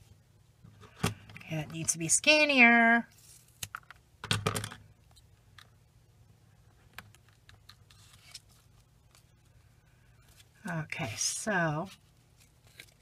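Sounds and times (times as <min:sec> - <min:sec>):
cardstock and tape rustling: 0:10.2 - 0:13.0.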